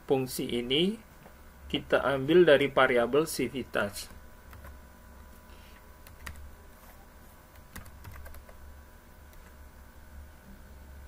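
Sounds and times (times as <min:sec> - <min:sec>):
low steady hum: 0:00.0 - 0:11.0
keyboard keys clicking: 0:07.6 - 0:08.6.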